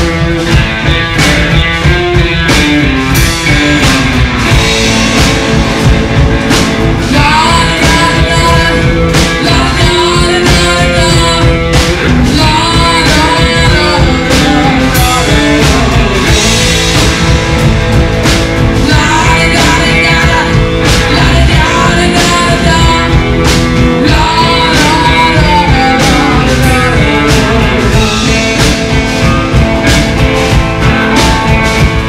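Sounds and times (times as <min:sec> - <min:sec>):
rock and roll band playing: 0:00.0 - 0:32.0
woman singing: 0:07.0 - 0:16.7, 0:18.8 - 0:28.7.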